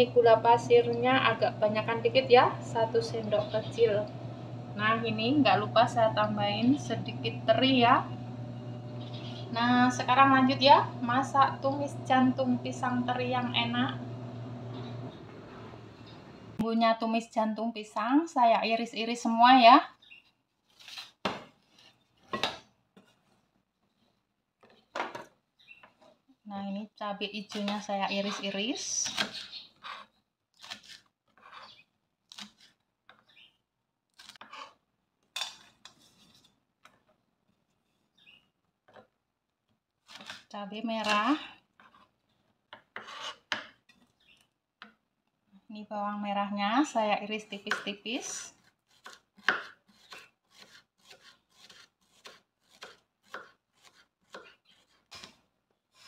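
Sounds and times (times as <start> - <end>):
knife scraping board: 20.7 - 23.1, 27.6 - 32.8, 34.2 - 34.8, 42.9 - 43.6, 48.9 - 56.0
knife chopping on cutting board: 48.9 - 55.3.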